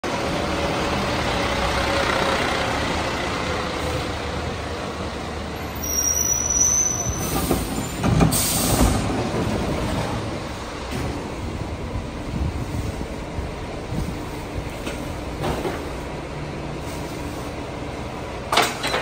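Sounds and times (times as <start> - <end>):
brake squeal: 5.6 - 8.9
air brake hiss: 7.2 - 9.0.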